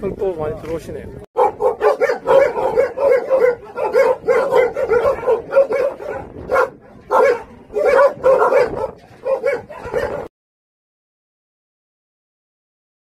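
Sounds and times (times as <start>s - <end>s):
dog barking: 1.4s - 10.3s.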